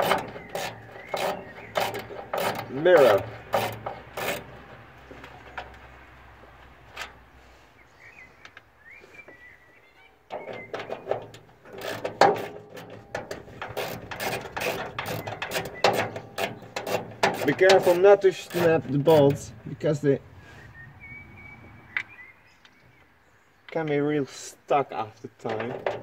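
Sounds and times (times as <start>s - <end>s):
faint bird chirping: 0.0s - 2.8s, 7.6s - 11.3s, 19.7s - 23.8s
hand ratchet clicking: 0.0s - 4.7s, 11.7s - 18.8s.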